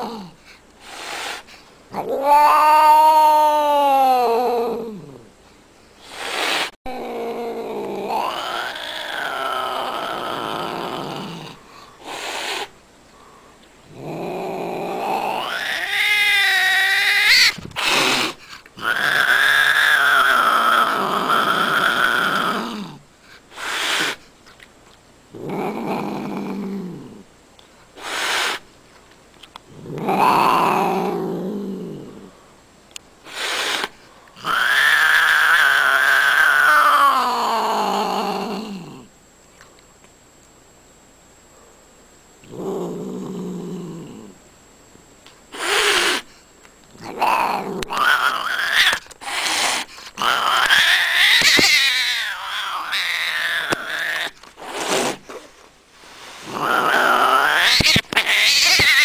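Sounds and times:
cat yowling and growling: 0:00.0 - 0:00.4, 0:01.9 - 0:05.3, 0:06.3 - 0:12.7, 0:13.9 - 0:23.0, 0:25.4 - 0:27.2, 0:29.8 - 0:32.3, 0:34.4 - 0:39.1, 0:45.6 - 0:46.3, 0:47.0 - 0:55.2, 0:56.4 - 0:59.0.

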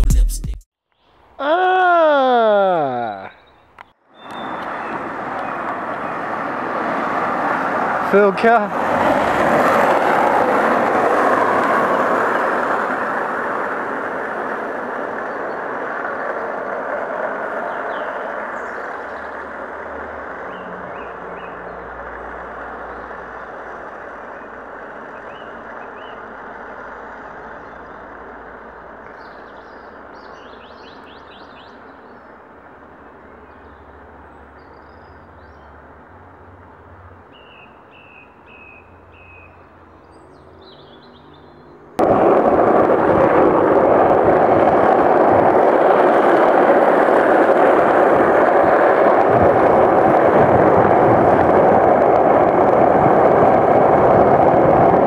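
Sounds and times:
birds chirping: 0:00.9 - 0:06.5, 0:17.5 - 0:19.8, 0:20.4 - 0:26.3, 0:29.1 - 0:32.4, 0:37.3 - 0:42.0
skateboard wheels rolling on asphalt: 0:03.5 - 0:55.0
wind rushing over microphone: 0:04.2 - 0:25.2, 0:42.0 - 0:55.0.

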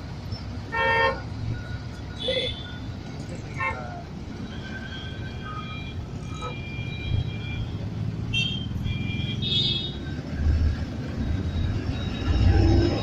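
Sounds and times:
engine and road rumble: 0:00.0 - 0:13.0
car horns honking: 0:00.7 - 0:01.3, 0:03.6 - 0:10.1.

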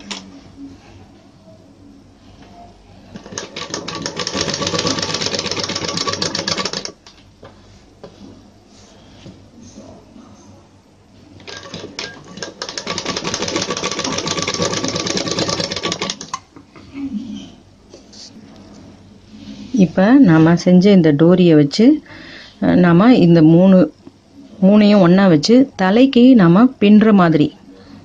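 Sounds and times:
sewing machine stitching: 0:03.1 - 0:07.0, 0:11.4 - 0:16.4.

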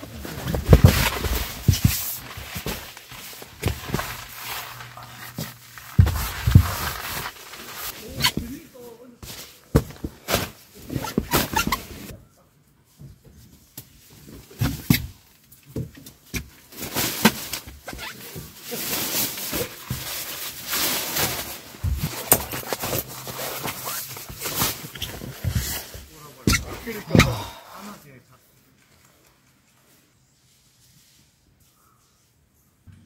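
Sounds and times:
tent fabric rustling: 0:00.0 - 0:12.1, 0:16.7 - 0:27.4.

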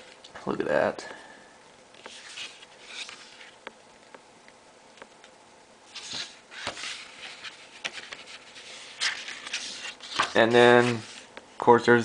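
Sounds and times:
paper pages turning: 0:02.0 - 0:03.6, 0:05.9 - 0:11.3.

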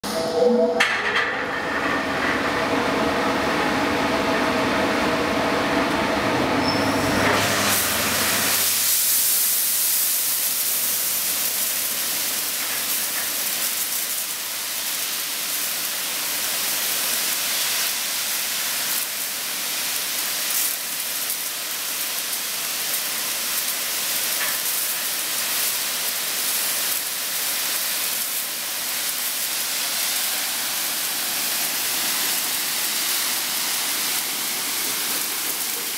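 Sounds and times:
machine hum with tones: 0:00.0 - 0:08.6
water jets spraying: 0:07.0 - 0:35.9.

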